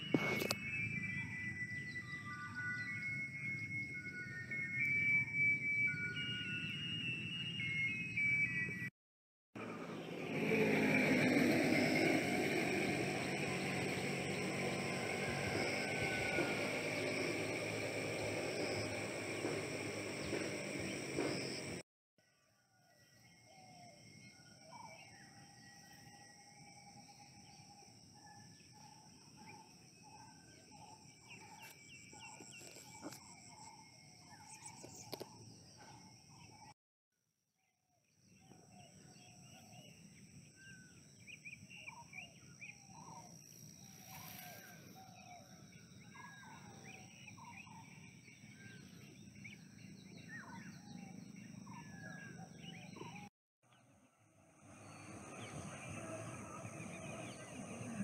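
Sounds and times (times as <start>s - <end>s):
steady high-pitched drone: 0.0s - 8.9s, 9.6s - 21.8s
birds chirping: 28.4s - 36.7s, 38.4s - 53.8s.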